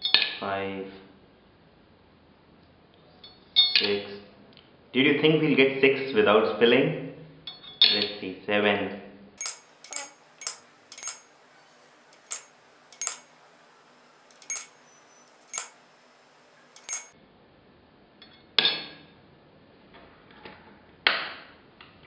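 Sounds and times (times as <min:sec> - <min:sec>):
coins clinking against glass: 0:09.4 - 0:11.4, 0:12.1 - 0:13.4, 0:14.2 - 0:17.1.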